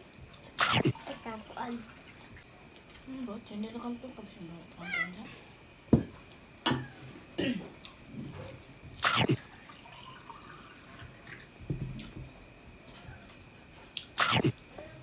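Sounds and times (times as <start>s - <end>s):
mouth noises from eating: 9.0s - 9.6s, 13.9s - 14.7s.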